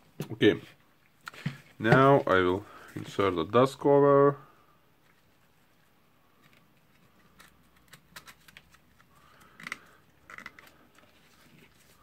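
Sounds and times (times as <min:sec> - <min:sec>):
squeaky plastic rubs: 0:06.5 - 0:12.0.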